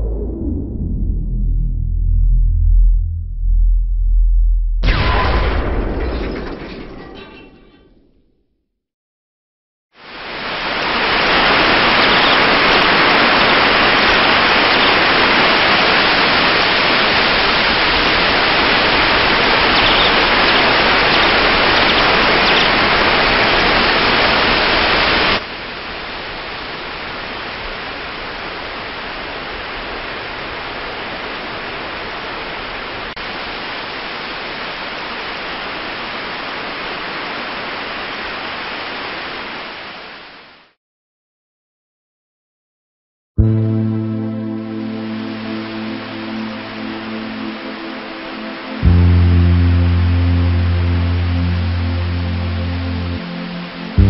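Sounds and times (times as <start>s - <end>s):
waterfall rushing: 10.0s - 40.0s, 44.9s - 54.0s.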